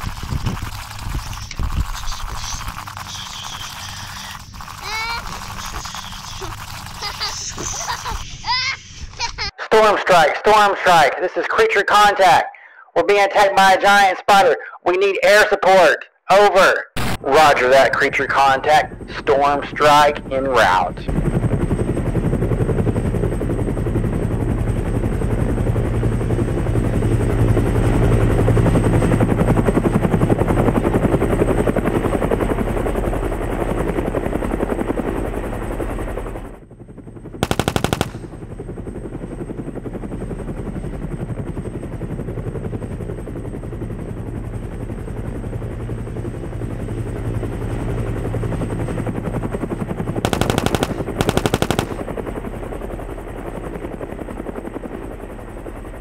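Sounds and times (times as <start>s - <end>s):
toy helicopter rotor chopping: 0.0s - 9.5s, 50.3s - 52.2s
toy machine-gun fire: 1.8s - 8.0s, 37.4s - 38.3s, 50.3s - 52.0s.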